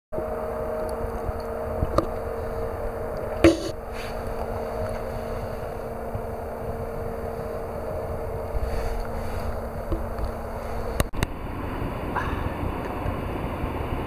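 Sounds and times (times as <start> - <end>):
steady machine hum: 0.1 - 14.0
sharp knock: 3.4 - 3.7.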